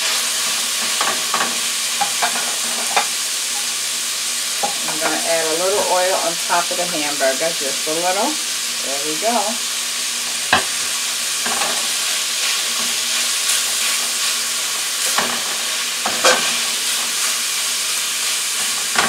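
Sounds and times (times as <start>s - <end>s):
meat and onions sizzling: 0.0s - 19.0s
spatula scraping pan: 4.6s - 8.0s, 10.5s - 17.4s.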